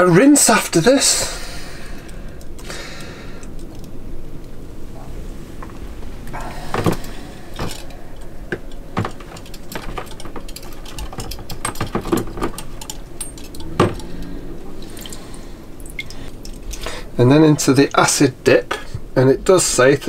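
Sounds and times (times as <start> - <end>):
water sloshing and dripping: 6.0 - 17.2
metal nuts and bolts clinking: 6.8 - 16.9.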